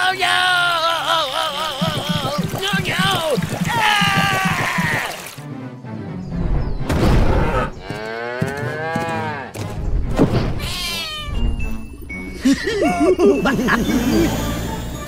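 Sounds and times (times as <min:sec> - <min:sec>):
light background music: 0:04.2 - 0:07.2, 0:08.7 - 0:15.0.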